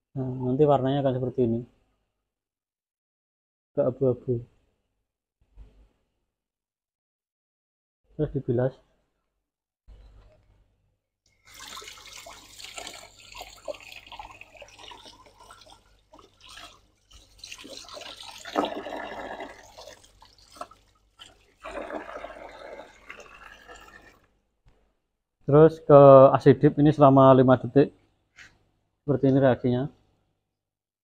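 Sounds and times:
water splashing from a pipe: 11.3s - 24.3s.

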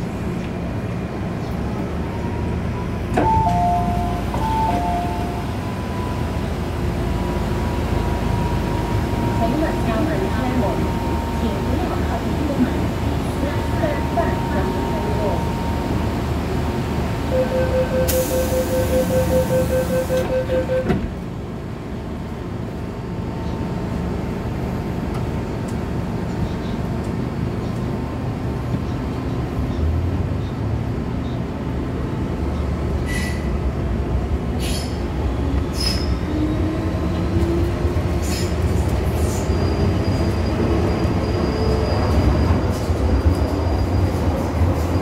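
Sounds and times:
train running rumble: 0.0s - 45.0s
wheels squealing and clicking: 35.7s - 36.3s.

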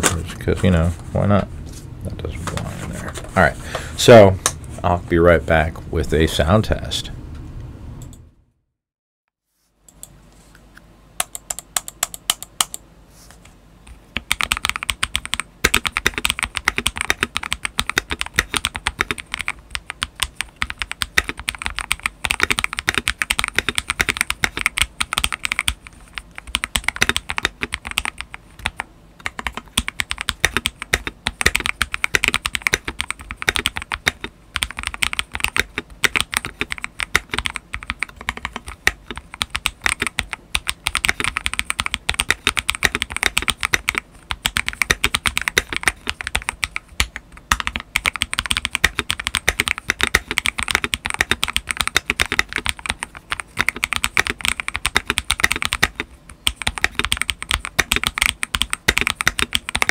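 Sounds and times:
typing on mechanical keyboard: 14.2s - 59.9s.

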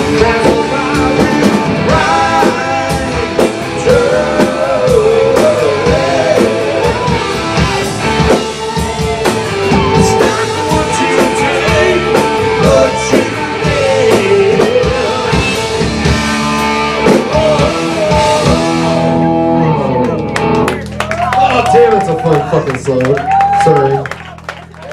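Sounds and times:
rock band playing: 0.0s - 24.9s
lead guitar bending pitch: 5.8s - 20.8s.

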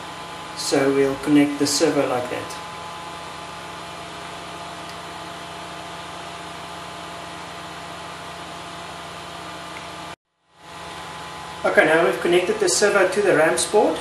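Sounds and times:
background hum and hiss: 0.0s - 14.0s.

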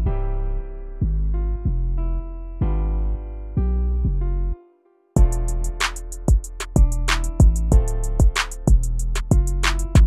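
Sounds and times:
drum beat: 5.2s - 10.0s.

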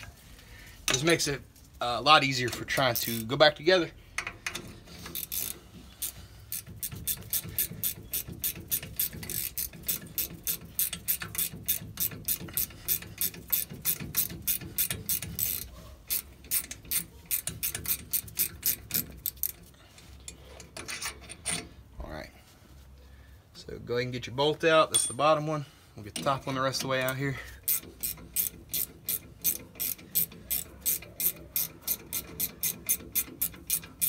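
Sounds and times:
ratcheting wrench clicking: 2.3s - 3.6s, 4.2s - 21.7s, 26.1s - 34.0s.

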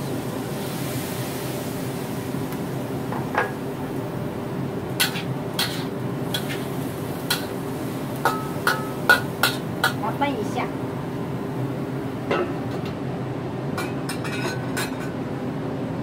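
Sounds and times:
steady low hum: 0.0s - 16.0s
metal spatula scraping a wok: 5.0s - 6.7s.

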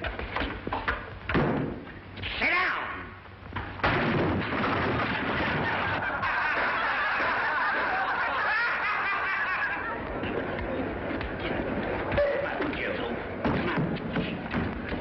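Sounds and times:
people laughing and chuckling: 5.0s - 12.7s.

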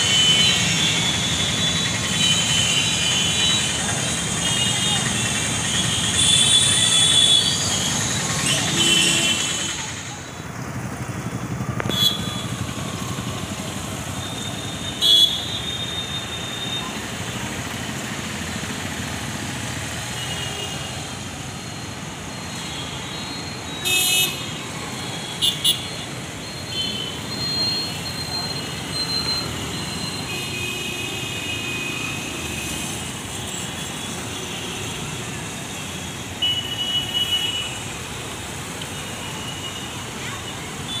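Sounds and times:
traffic engine and road noise: 0.0s - 41.0s.

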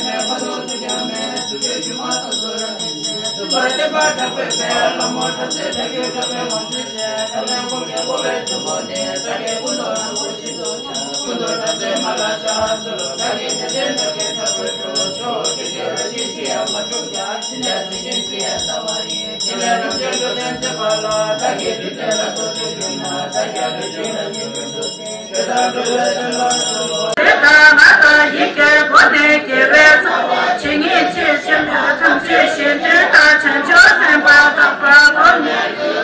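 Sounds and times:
small bell ringing: 0.0s - 27.2s
man leading a chant: 0.0s - 29.4s
group chanting prayers: 0.0s - 36.0s.

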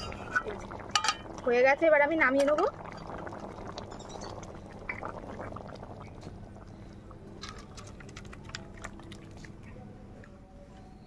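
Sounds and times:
curry bubbling in a pan: 0.0s - 9.6s
liquid pouring into a bowl: 2.7s - 9.6s.

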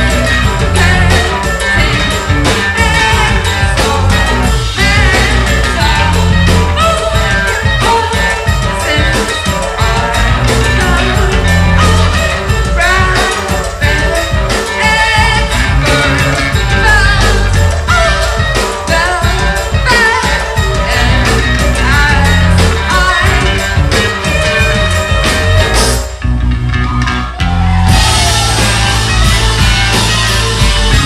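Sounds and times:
lead vocal singing: 0.0s - 25.9s
noise rock band playing: 0.0s - 31.0s
drum kit hit rapidly: 27.4s - 31.0s.

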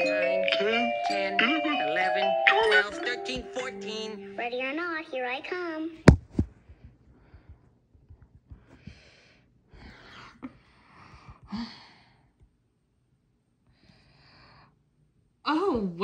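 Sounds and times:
sharp knocks: 6.1s - 6.8s
person breathing close to microphone: 8.5s - 12.4s.

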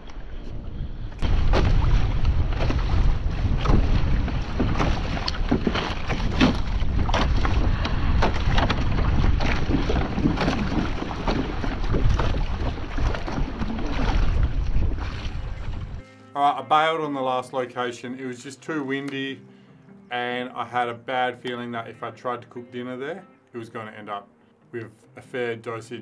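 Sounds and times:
wind buffeting microphone: 0.0s - 16.0s
water splashing against kayak: 1.2s - 16.0s.

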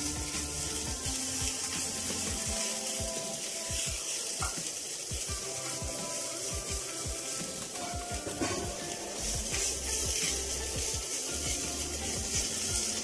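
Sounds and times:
paste sizzling in oil: 0.0s - 13.0s
wooden spatula scraping pan: 5.5s - 13.0s.

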